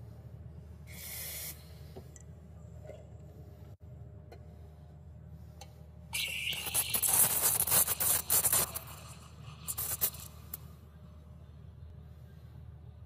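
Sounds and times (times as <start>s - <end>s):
coffee grinder grinding beans: 6.2s - 10.3s.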